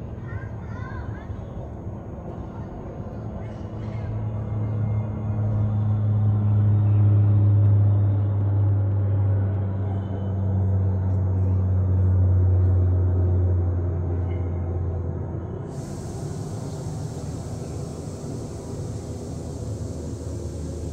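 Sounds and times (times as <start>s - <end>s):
low engine rumble: 0.0s - 20.9s
steady hiss: 15.7s - 20.9s.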